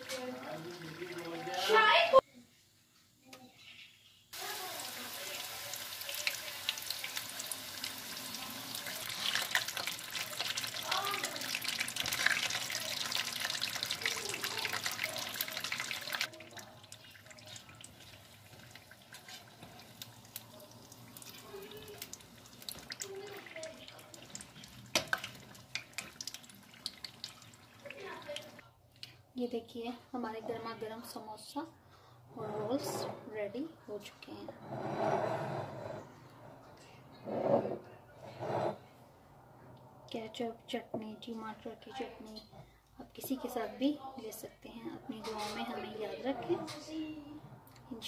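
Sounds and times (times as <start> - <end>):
food frying in hot oil: 0.0 - 1.6, 4.3 - 28.6.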